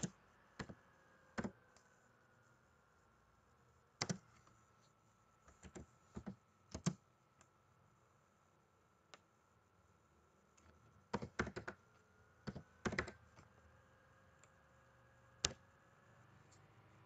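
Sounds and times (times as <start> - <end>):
faint keyboard typing: 0.0 - 2.0, 3.9 - 7.6, 10.4 - 14.8.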